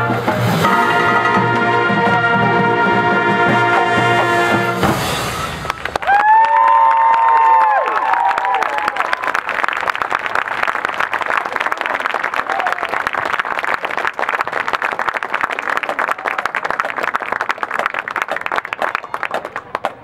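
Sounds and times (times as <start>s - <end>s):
marching band brass: 0.0s - 6.0s
crowd applauding: 5.4s - 20.0s.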